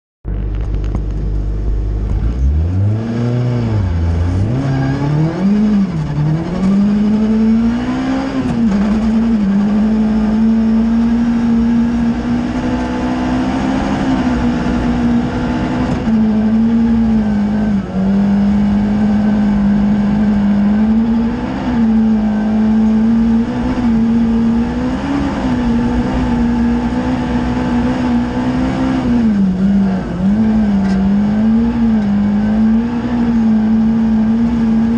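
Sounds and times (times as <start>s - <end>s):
car engine revving: 0.3s - 34.9s.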